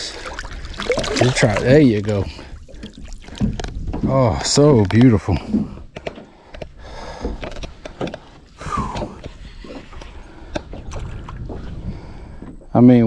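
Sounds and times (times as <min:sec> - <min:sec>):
background noise wash: 0:00.0 - 0:04.0
knocks and clicks of gear: 0:03.4 - 0:09.4.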